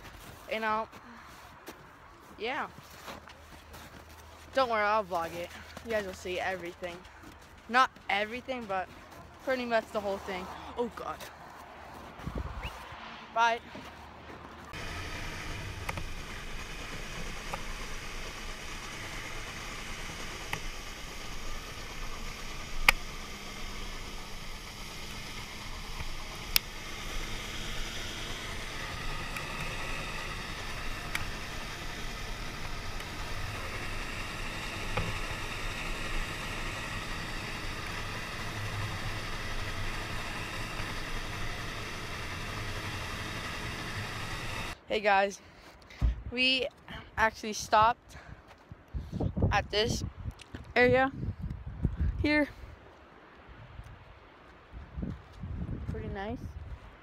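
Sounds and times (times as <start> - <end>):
snowmobile engine drone: 0.0 - 45.1
wind noise: 12.2 - 13.1, 48.7 - 52.7, 53.4 - 56.9
sharp clicks: 14.7 - 44.8.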